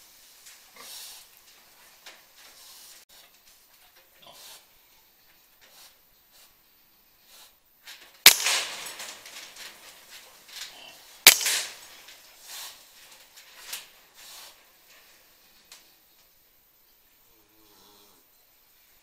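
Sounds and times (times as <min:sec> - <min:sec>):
air rifle shots: 0:08.2 - 0:09.7, 0:11.2 - 0:12.0.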